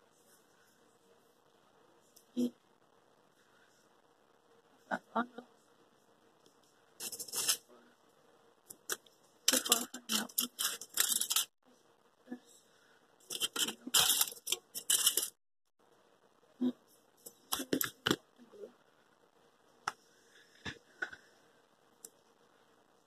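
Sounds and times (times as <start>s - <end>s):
craft materials crinkling: 8.8s - 11.5s, 13.2s - 15.4s.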